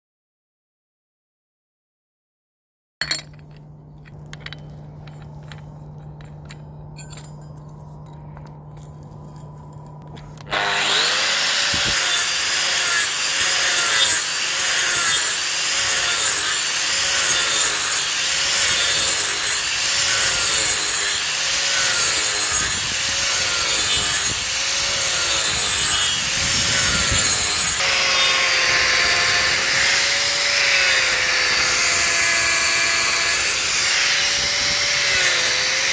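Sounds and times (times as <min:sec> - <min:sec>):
low hum: 0:03.0 - 0:10.9
angle grinder rasping wood: 0:09.5 - 0:35.9.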